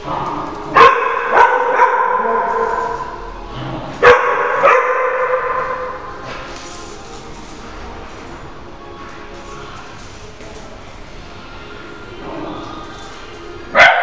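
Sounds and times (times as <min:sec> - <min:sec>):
dogs barking: 0:00.0 - 0:06.1, 0:13.7 - 0:14.0.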